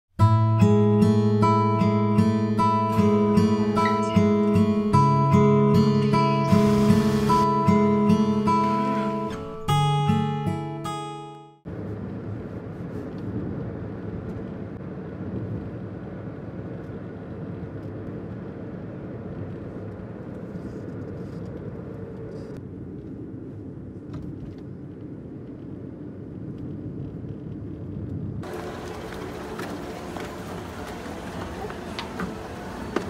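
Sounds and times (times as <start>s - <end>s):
car rumble from inside cabin: 28.4s - 33.0s.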